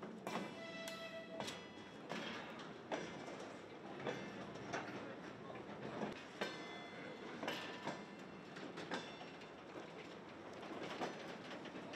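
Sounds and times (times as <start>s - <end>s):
metallic clanks of train wheels: 0.0s - 11.9s
faint high squeal: 0.4s - 1.8s.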